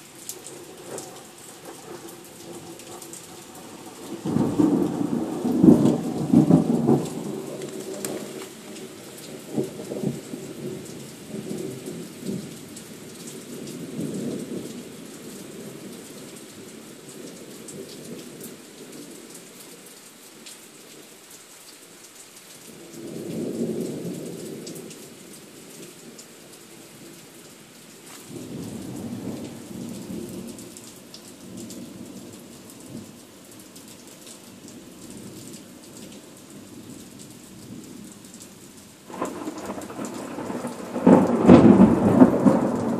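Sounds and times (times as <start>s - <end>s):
rain hissing: 0.0s - 19.1s, 21.1s - 42.9s
rolling thunder: 0.9s - 12.4s, 39.1s - 42.9s.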